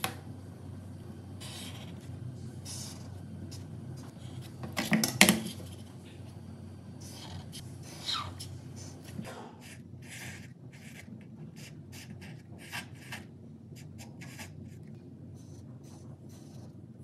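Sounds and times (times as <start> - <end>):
marker scratching on paper: 1.4 - 4.6, 7.0 - 14.8, 15.4 - 16.7.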